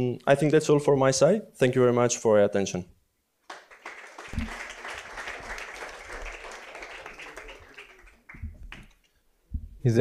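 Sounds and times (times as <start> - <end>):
audience applauding: 3.5 - 9.1.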